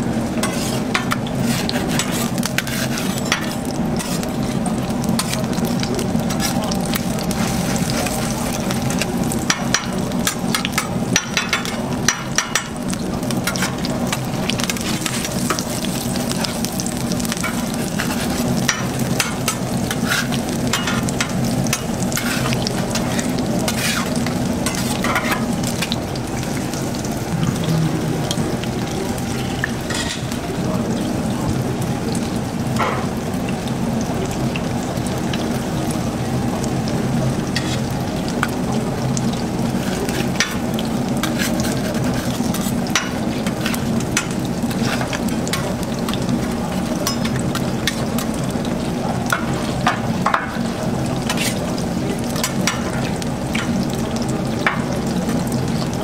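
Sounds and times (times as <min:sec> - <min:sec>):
food sizzling on a griddle: 0:00.0 - 0:56.0
metal spatulas scraping and clicking: 0:00.4 - 0:04.3, 0:19.2 - 0:25.9, 0:29.9 - 0:30.3, 0:37.6 - 0:37.9, 0:41.2 - 0:43.8, 0:51.3 - 0:51.6
low hum: 0:27.0 - 0:29.8.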